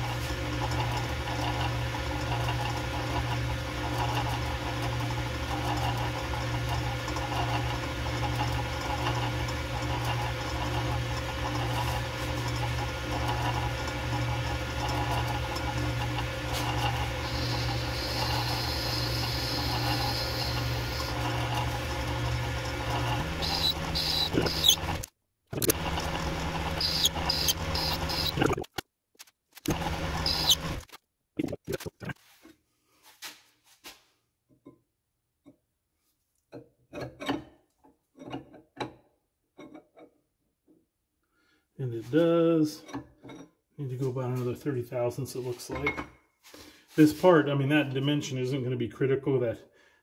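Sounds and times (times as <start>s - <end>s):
metal lathe humming: 5.6s - 28.5s, 29.7s - 30.8s.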